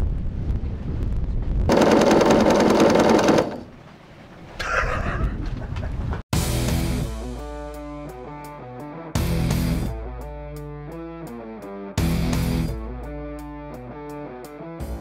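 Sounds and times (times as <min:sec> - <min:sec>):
electric pump clattering: 0:01.7 - 0:03.9.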